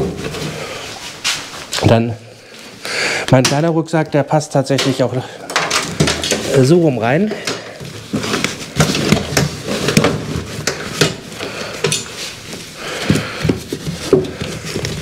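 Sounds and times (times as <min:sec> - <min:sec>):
fabric rustling: 0:05.9 - 0:15.0.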